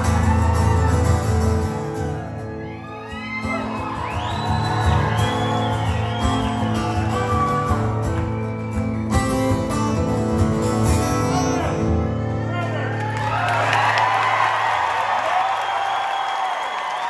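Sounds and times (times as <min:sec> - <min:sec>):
acoustic guitars strummed: 0:03.4 - 0:12.6.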